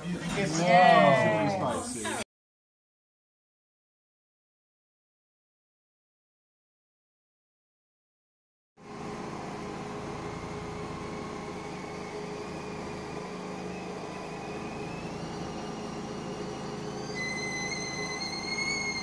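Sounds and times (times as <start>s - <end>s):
high whine: 8.8s - 19.0s
machine whirring: 8.8s - 19.0s.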